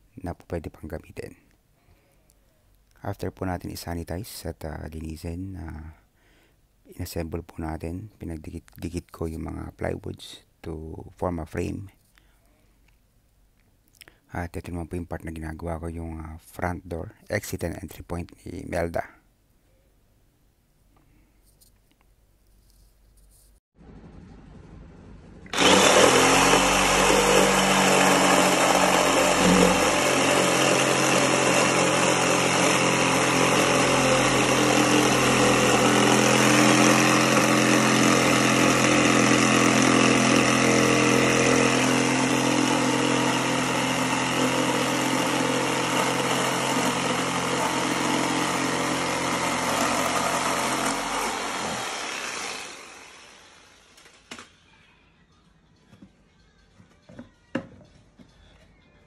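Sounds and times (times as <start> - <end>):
jigsaw cutting plywood: 25.5 - 54.4.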